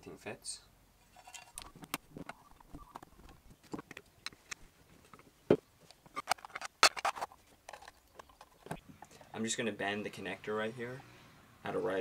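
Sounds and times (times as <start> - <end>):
clicks and knocks of handling parts: 1.2 - 9.3.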